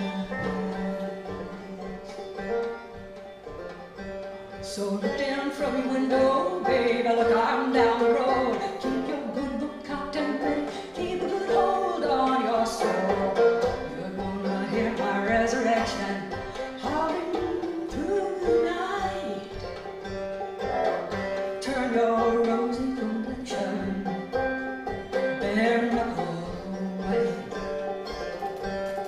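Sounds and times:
woman singing: 0.0s - 2.3s, 4.6s - 19.8s, 21.6s - 24.4s, 25.2s - 27.7s
banjo playing: 0.0s - 29.0s.

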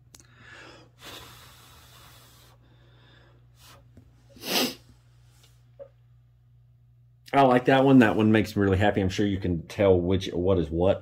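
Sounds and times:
man breathing: 0.1s - 5.2s.

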